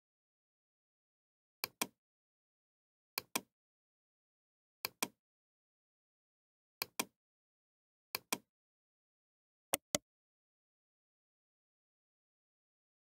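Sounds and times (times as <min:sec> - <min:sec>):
computer mouse button clicking: 0:09.8 - 0:10.0.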